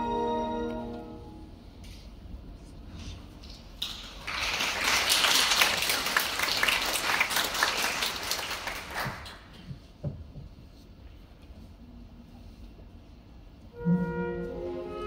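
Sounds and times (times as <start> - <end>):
orchestral music: 0.0 - 2.0, 13.6 - 15.0
audience applause: 3.8 - 9.5.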